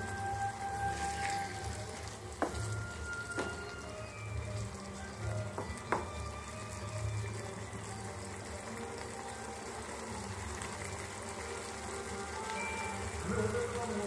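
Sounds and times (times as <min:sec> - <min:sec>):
gravy simmering and sizzling: 0:00.0 - 0:14.0
spatula stirring: 0:00.7 - 0:03.6.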